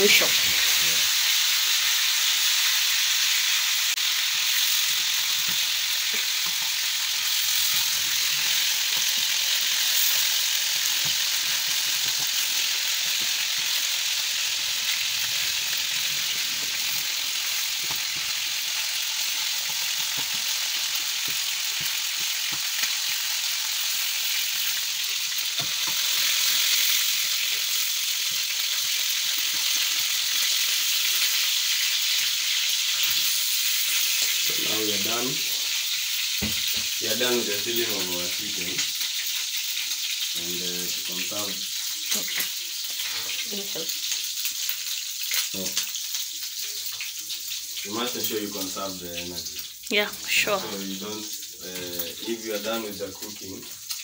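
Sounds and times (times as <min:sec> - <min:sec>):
chicken sizzling in hot oil: 0:00.0 - 0:54.0.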